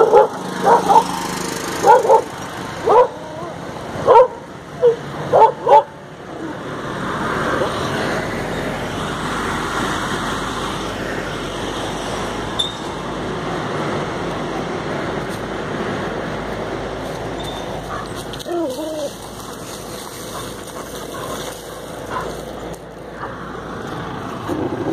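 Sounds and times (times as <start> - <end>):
dog barking: 0.0 - 1.2, 1.8 - 6.0, 22.1 - 22.4, 23.2 - 23.4
footsteps crunching dry leaves: 16.8 - 23.2.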